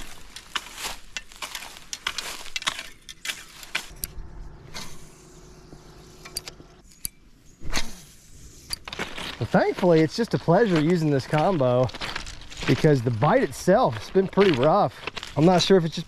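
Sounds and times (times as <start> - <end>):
footsteps through brush and grass: 0.0 - 6.2, 8.0 - 16.0
faint low hum: 3.7 - 10.1.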